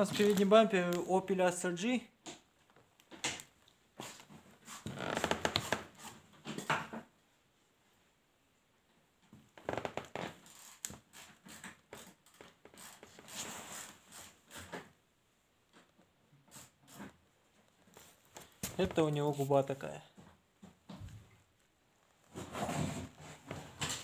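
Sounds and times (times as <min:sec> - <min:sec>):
handling noise rustling and scraping: 0:00.0 - 0:01.0, 0:10.3 - 0:15.0, 0:15.7 - 0:20.2, 0:22.1 - 0:24.0.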